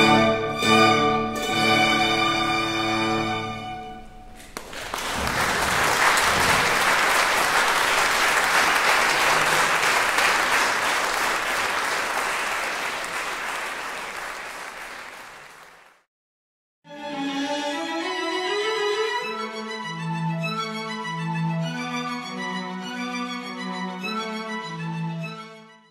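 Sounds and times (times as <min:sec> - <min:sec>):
audience applause: 0:04.4 - 0:16.0.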